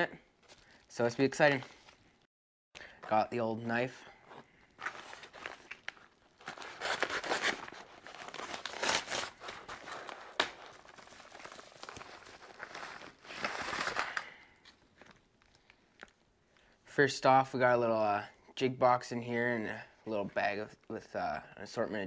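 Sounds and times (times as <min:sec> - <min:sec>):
plastic bag crinkling: 0:04.6 - 0:16.2
paper envelope tearing: 0:04.8 - 0:14.4.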